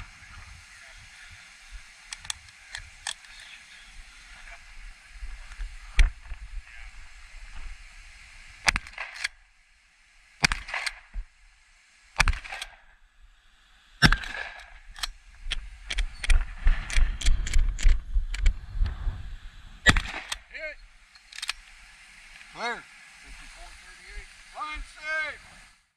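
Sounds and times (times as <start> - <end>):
shotgun shots: 8.6 - 9.3, 10.4 - 11.0, 12.2 - 12.8, 14.0 - 14.7, 19.9 - 20.5
low rumble: 15.2 - 21.0.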